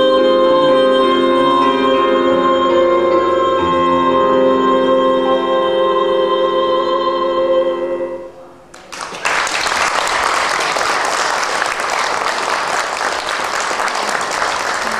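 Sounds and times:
piano chord: 0.0s - 8.6s
audience applause: 8.7s - 14.9s.

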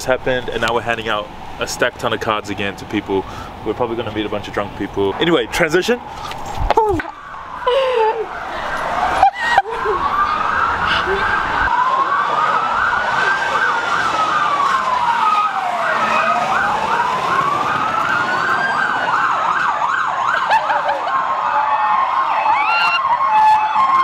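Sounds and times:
wailing siren: 6.0s - 24.0s
yelping siren: 6.2s - 24.0s.

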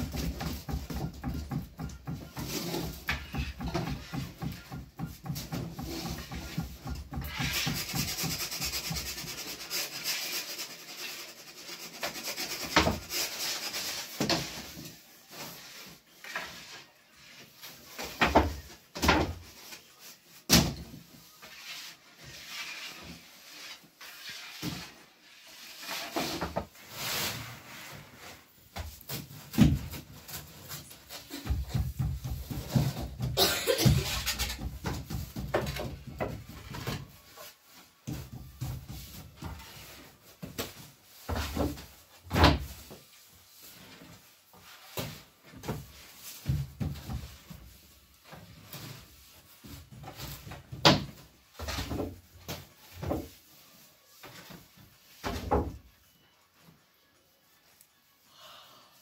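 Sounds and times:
wooden tools knocking and scraping: 0.0s - 27.0s, 28.1s - 53.6s.

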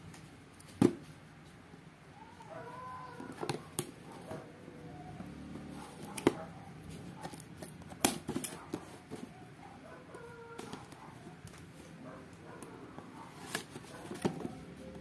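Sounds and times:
cardboard being handled: 6.0s - 9.4s, 13.0s - 14.8s.

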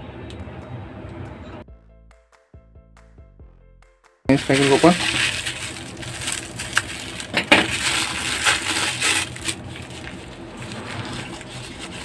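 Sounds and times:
paper rustling: 4.3s - 12.0s
scissors cutting crinkly wrapper: 4.3s - 12.0s.

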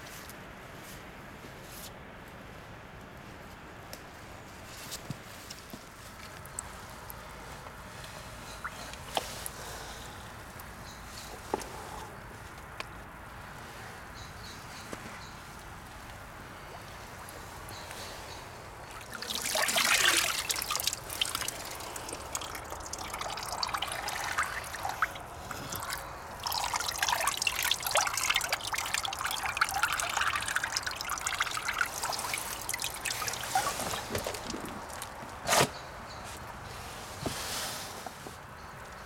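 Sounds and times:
water splashing and trickling: 5.5s - 11.3s, 15.5s - 35.4s.

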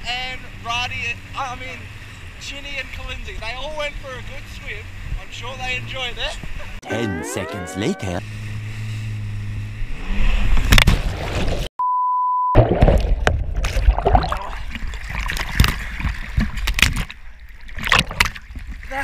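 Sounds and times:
jet ski engine running: 0.0s - 9.9s
beep tone: 6.8s - 8.2s, 11.8s - 12.6s
water splashing and churning: 8.3s - 11.7s, 12.6s - 19.0s.

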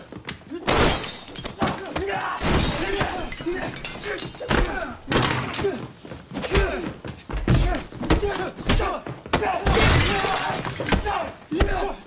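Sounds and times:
glass breaking: 0.7s - 4.8s, 9.7s - 11.8s
pained grunts: 4.1s - 7.0s.

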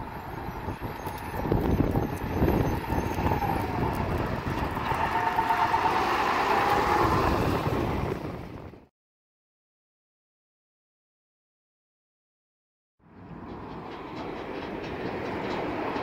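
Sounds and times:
garbage truck passing by: 0.0s - 8.8s.

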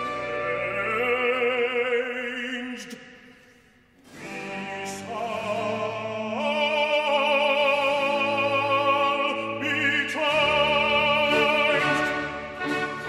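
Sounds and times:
orchestra playing: 0.0s - 1.6s, 4.0s - 13.0s
operatic voice singing: 0.0s - 3.4s, 4.1s - 13.0s.

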